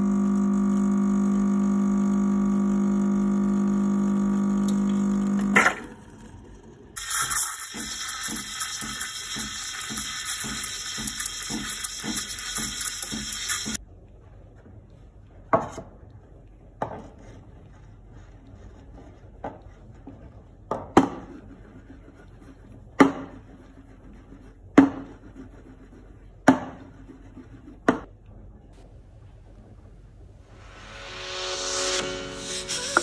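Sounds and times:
steam wand hissing: 7.0 - 13.8, 30.7 - 33.0.

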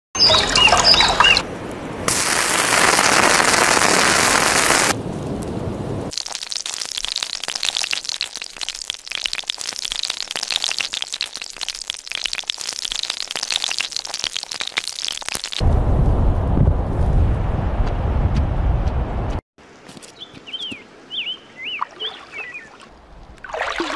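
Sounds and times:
water splashing: 0.2 - 1.4, 6.1 - 15.6, 21.6 - 23.9
food sizzling in oil: 6.1 - 15.6.

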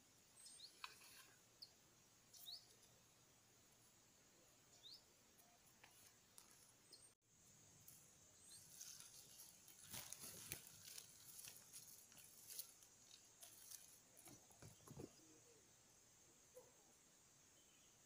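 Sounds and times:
faint bird chirps: 0.1 - 3.0, 13.5 - 18.0
small ticks and rustles: 0.5 - 1.7, 5.3 - 7.1, 7.8 - 15.4.

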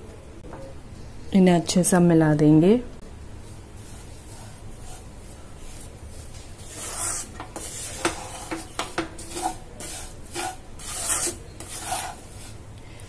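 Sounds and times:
wooden spatula scraping a pan: 3.8 - 12.7
spatula knocking against pan: 7.4 - 9.2.

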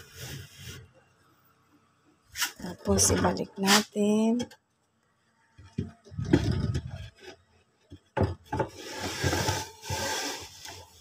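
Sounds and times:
wood scraping: 5.8 - 11.0.

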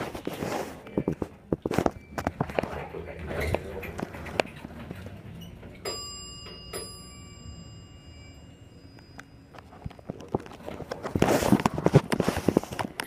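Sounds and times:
elevator chime ding: 5.4 - 10.6.

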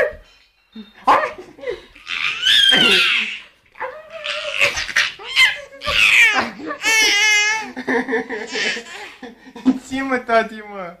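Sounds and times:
baby laughing and squealing: 1.8 - 7.8, 8.4 - 9.2.

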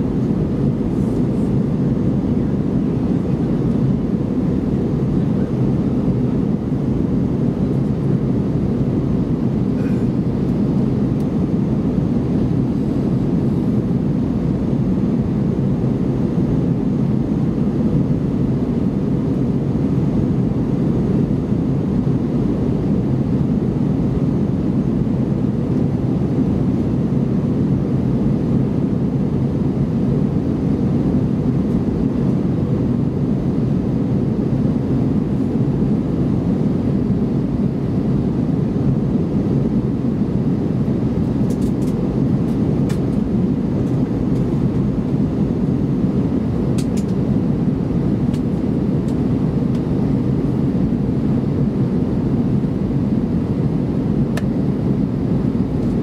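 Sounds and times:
jet engines in cabin: 0.0 - 56.0.

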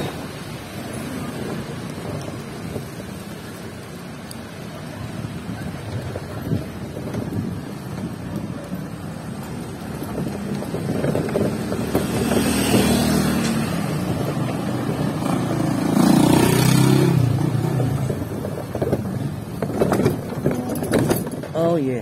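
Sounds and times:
vehicle engine and road noise: 0.0 - 22.0
wind on microphone: 4.6 - 21.4.

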